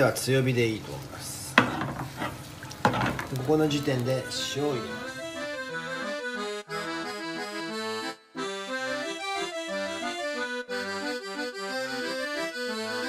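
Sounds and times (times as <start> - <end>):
lively background music: 4.1 - 13.0.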